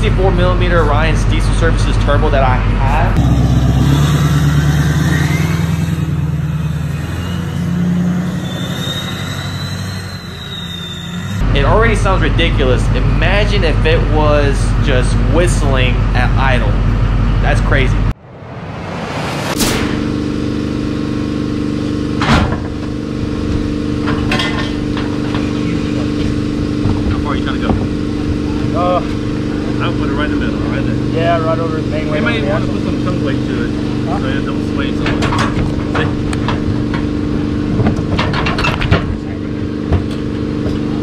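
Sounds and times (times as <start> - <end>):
diesel truck engine rumbling: 0.0 - 41.0
high whistle: 3.9 - 11.4.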